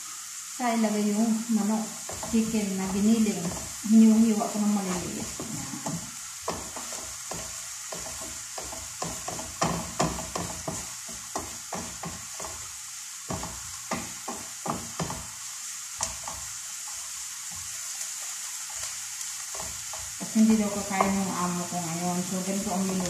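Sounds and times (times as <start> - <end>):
onion sizzling in oil: 0.0 - 23.0
wooden spatula knocking pan: 2.0 - 23.0.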